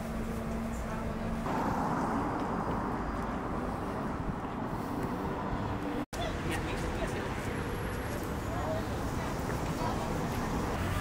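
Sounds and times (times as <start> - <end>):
road traffic noise: 0.0 - 11.0
low hum: 0.3 - 6.0.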